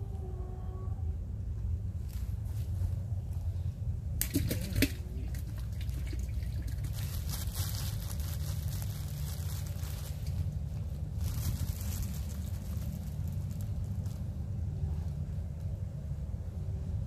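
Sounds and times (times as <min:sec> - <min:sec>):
low rumble: 0:00.0 - 0:17.0
water splashing and dripping: 0:04.2 - 0:07.1
fizzing crackly patter: 0:04.2 - 0:10.5.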